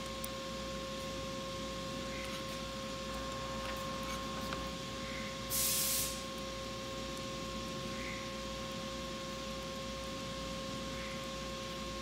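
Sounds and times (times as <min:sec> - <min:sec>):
steady electrical whine: 0:00.0 - 0:12.0
short loud hiss: 0:05.5 - 0:06.2.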